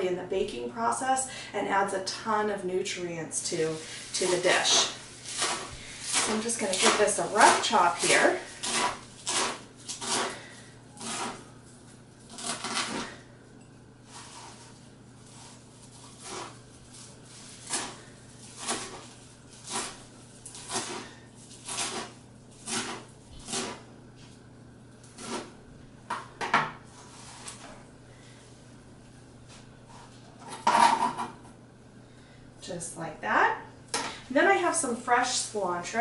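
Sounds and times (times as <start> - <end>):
knife chopping on cutting board: 4.8 - 10.4.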